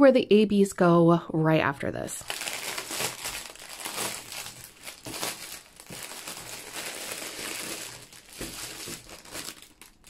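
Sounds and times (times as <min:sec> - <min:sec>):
plastic packaging crinkling: 0:02.2 - 0:10.0.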